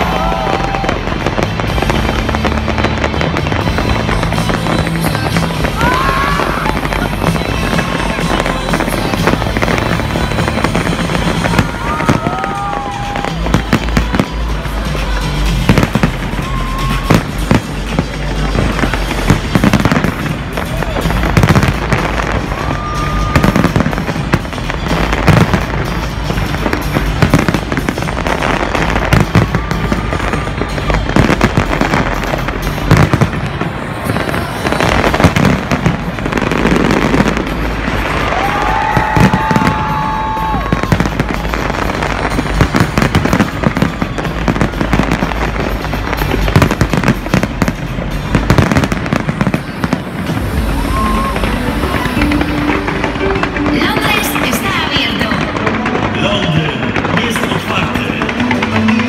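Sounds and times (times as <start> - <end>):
fireworks bangs and crackles: 0.0 - 59.0.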